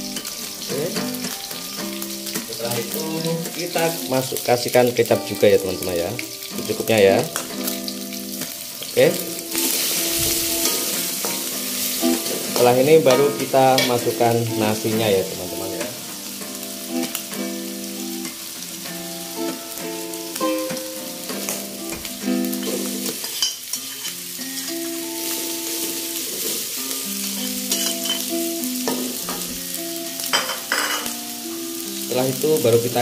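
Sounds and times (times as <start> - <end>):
background music of held notes: 0.0 - 33.0
food sizzling in wok: 0.0 - 33.0
metal spatula scraping: 27.7 - 28.2.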